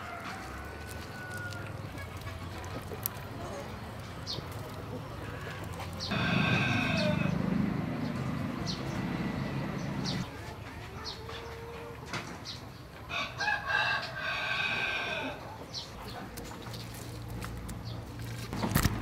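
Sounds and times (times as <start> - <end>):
rooster crowing: 0.0 - 1.7, 6.1 - 10.2, 13.1 - 15.4.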